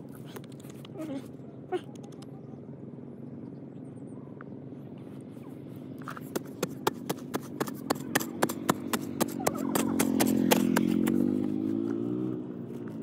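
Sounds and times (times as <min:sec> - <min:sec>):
low mechanical hum: 0:00.0 - 0:13.0
rapid sharp knocks: 0:06.3 - 0:11.4.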